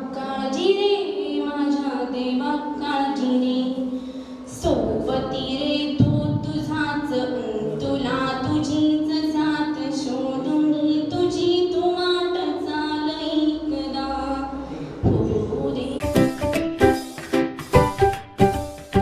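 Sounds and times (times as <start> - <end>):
girl singing into microphone: 4.5 - 16.1
loud burst of music: 16.0 - 19.0.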